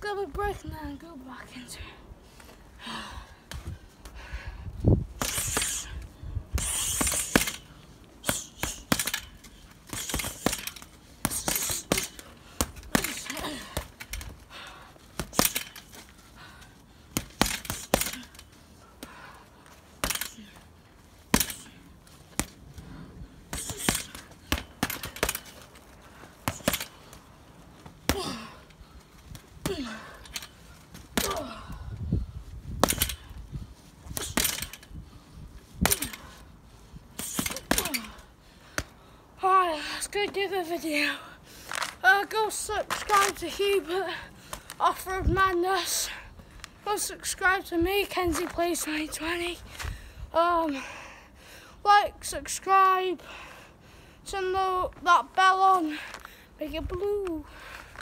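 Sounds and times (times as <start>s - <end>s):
punches thudding on punching bag: 8.2s - 13.9s, 15.2s - 15.8s, 17.1s - 18.3s, 21.3s - 22.6s, 23.5s - 25.6s, 26.4s - 27.0s, 31.1s - 31.7s, 37.2s - 38.2s.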